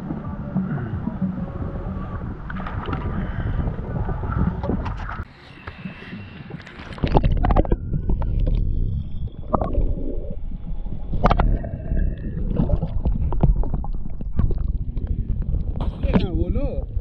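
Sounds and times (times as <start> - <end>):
underwater rumble and gurgling: 0.0 - 17.0
knocks underwater: 2.4 - 3.6, 4.3 - 5.3, 6.7 - 9.9, 11.0 - 17.0.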